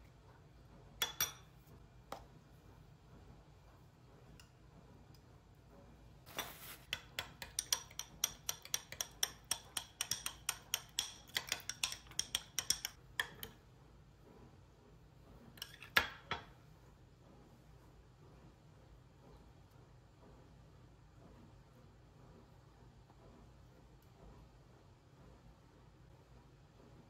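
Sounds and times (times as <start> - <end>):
spoon clinking against glass bowl: 1.0 - 1.5, 6.9 - 13.6
spoon scraping bowl: 6.3 - 13.6, 15.6 - 16.0.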